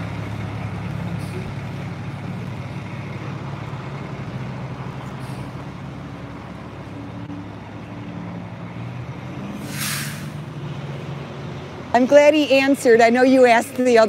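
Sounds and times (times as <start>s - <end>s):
diesel engine running: 0.0s - 14.0s
burst of hiss: 9.6s - 10.4s.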